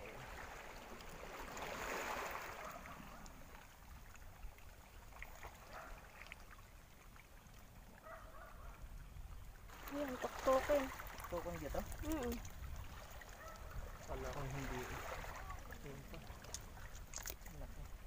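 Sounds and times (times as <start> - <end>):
seawater washing over rocks: 0.0 - 3.6, 9.7 - 18.0.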